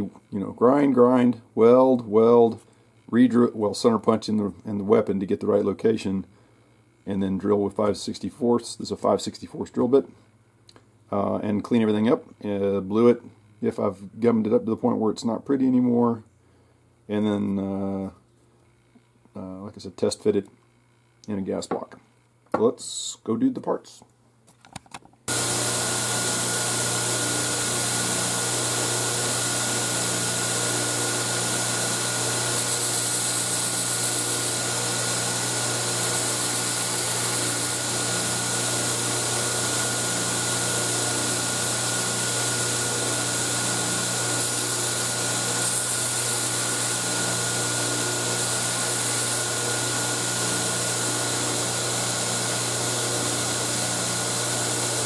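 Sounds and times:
belt grinder motor hum: 25.3s - 55.0s
steel grinding hiss: 25.3s - 55.0s.

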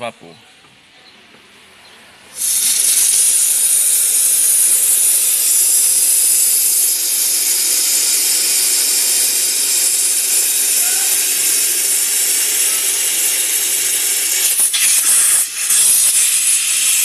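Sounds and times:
steam cleaner hissing: 2.3s - 17.0s.

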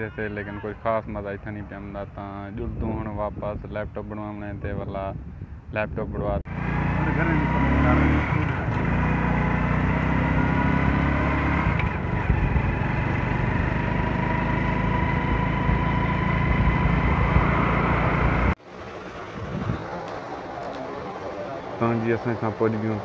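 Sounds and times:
vehicle engine and road noise: 6.4s - 23.0s.

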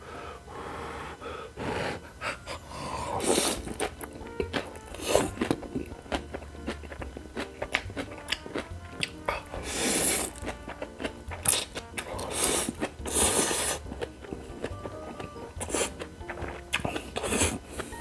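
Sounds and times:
man slurping noodles: 1.6s - 3.9s, 4.9s - 5.6s, 9.3s - 10.4s, 11.4s - 13.9s, 15.6s - 16.0s, 16.7s - 18.0s
wet chewing clicks: 3.1s - 18.0s.

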